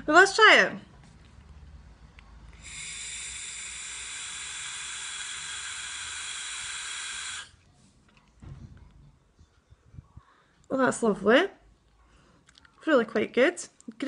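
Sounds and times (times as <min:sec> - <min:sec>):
electronic cigarette hiss: 0:02.6 - 0:07.6.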